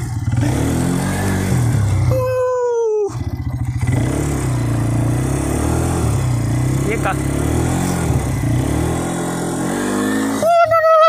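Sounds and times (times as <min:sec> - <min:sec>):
quad bike engine revving: 0:00.0 - 0:11.0.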